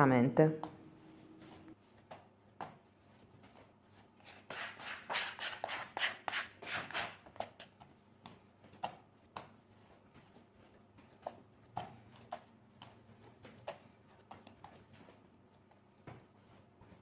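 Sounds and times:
soft knocks of kneading dough: 0:01.4 - 0:04.2, 0:07.3 - 0:17.0
bench scraper scraping dough off board: 0:04.3 - 0:07.7.

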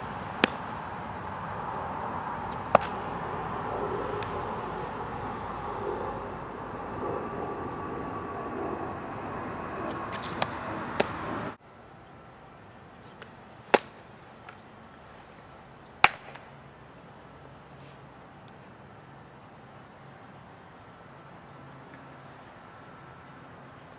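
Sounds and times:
steady outdoor hiss: 0:00.0 - 0:23.9
ball smacking into catcher's mitt: 0:00.4 - 0:00.7, 0:02.5 - 0:03.1.

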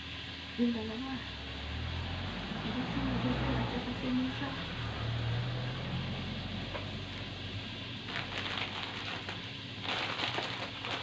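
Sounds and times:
plastic wrapper crinkling: 0:08.0 - 0:11.0.

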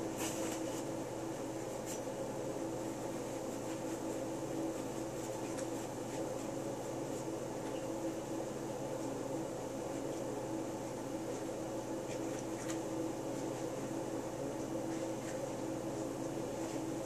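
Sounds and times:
steady hum: 0:00.0 - 0:17.0
paper towel rubbing: 0:02.9 - 0:07.4.

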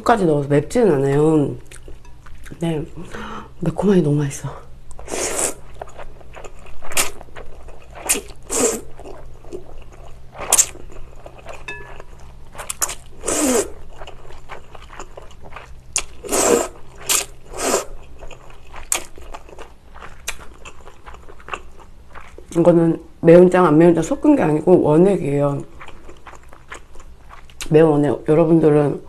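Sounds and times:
person slurping noodles: 0:05.0 - 0:05.6, 0:08.0 - 0:08.9, 0:13.2 - 0:13.8, 0:16.2 - 0:18.0.

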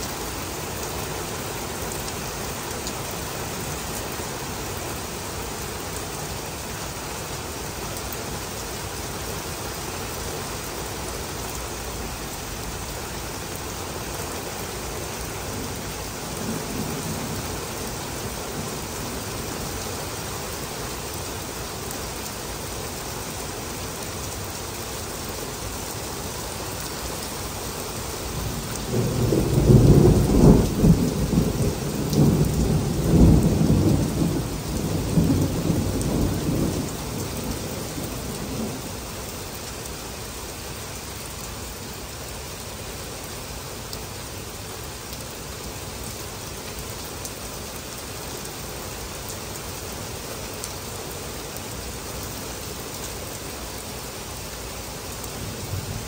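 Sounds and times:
heavy rain on pavement: 0:00.0 - 0:56.0
rumble of thunder: 0:28.8 - 0:38.8.

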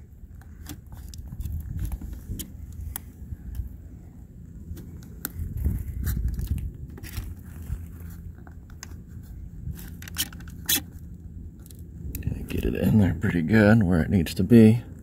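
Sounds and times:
low rumble: 0:00.0 - 0:14.1
small clicks and scrapes: 0:00.3 - 0:03.7, 0:04.7 - 0:11.8.

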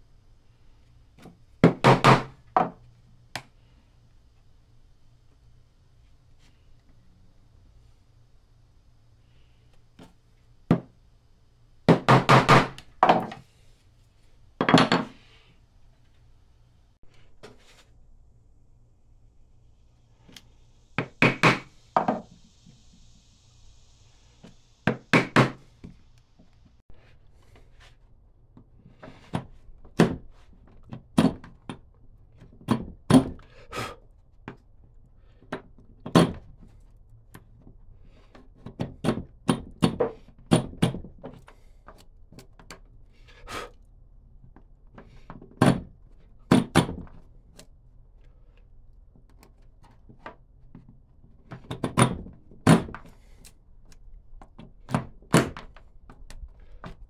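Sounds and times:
woodworking knocks and thunks: 0:01.2 - 0:02.8, 0:10.7 - 0:10.9, 0:11.9 - 0:13.4, 0:14.6 - 0:15.2, 0:21.0 - 0:22.3, 0:24.9 - 0:26.0, 0:29.3 - 0:30.3, 0:30.9 - 0:31.5, 0:32.5 - 0:33.4, 0:35.5 - 0:36.6, 0:38.6 - 0:41.4, 0:45.0 - 0:45.9, 0:46.5 - 0:47.2, 0:51.5 - 0:53.1, 0:54.4 - 0:56.2.

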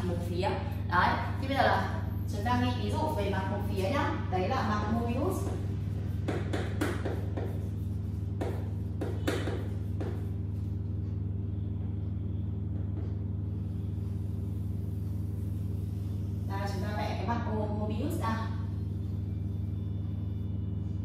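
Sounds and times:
steady low hum: 0:00.0 - 0:21.0
chalk scratching on blackboard: 0:05.4 - 0:10.7.

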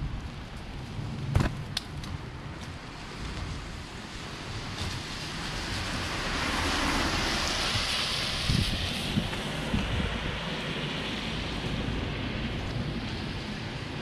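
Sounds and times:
low wind rumble on microphone: 0:00.0 - 0:14.0
vehicle tyre hiss: 0:03.0 - 0:13.9.

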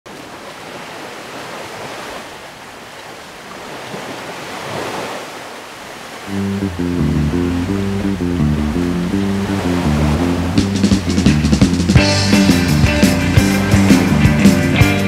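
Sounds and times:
small waves washing over rocks: 0:00.1 - 0:06.3
music: 0:06.3 - 0:15.0.

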